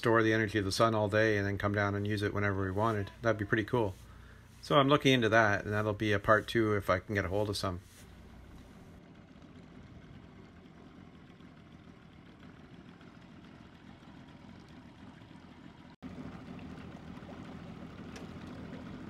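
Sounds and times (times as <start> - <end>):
water and wind rumble: 7.7 - 19.0.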